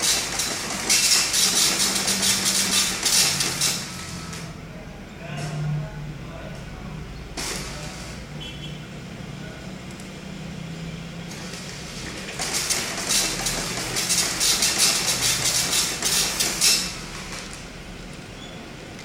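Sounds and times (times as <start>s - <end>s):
dot-matrix printer printing: 0.0s - 4.6s, 7.4s - 8.3s, 11.2s - 19.0s.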